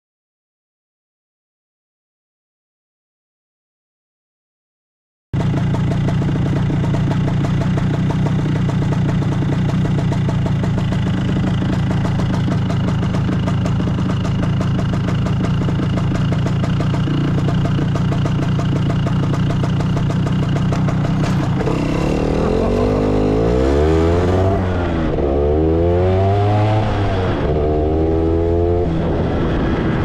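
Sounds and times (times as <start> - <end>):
scooter engine idling: 5.4 - 25.3.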